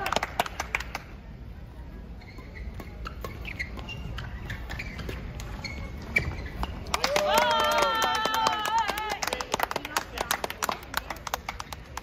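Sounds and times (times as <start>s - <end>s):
shoes squeaking on court: 2.0s - 6.9s.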